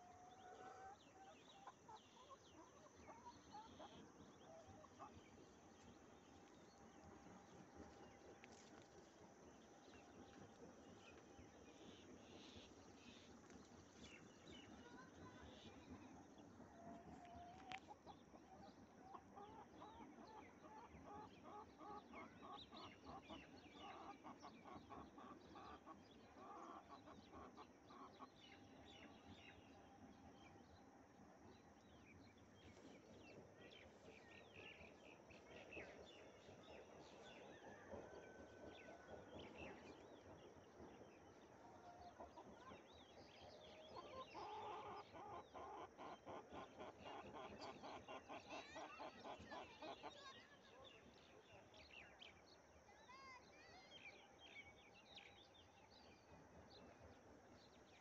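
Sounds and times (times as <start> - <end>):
hen clucking: 44.0 - 50.0.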